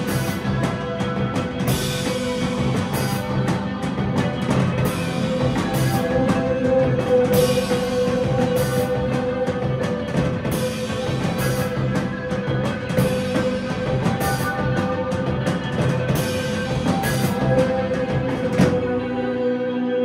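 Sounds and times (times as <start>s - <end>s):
live rock band playing: 0.0s - 20.0s.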